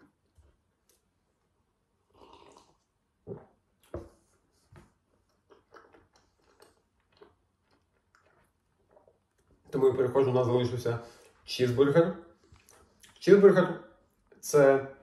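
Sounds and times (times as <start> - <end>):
sipping cola from a cup: 2.0 - 9.8
chewing: 5.1 - 9.8, 12.4 - 13.2.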